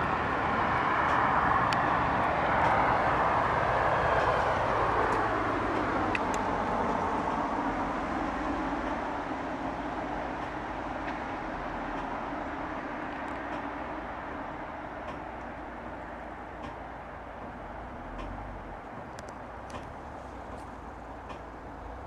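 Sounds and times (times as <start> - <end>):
train wheels on rails: 0.0 - 22.0
faint clicks: 19.0 - 21.6.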